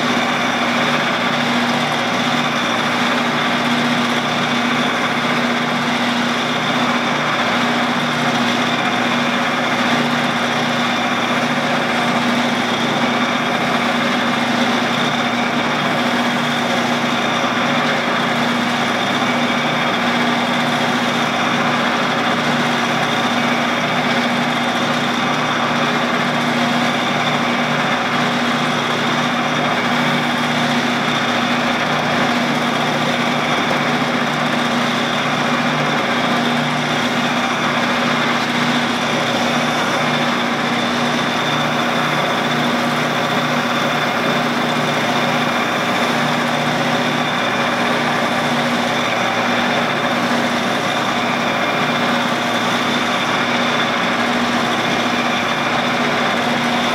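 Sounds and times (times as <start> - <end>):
machine humming with high whine: 0.0 - 56.9
rag polishing rushing noise: 0.0 - 56.9.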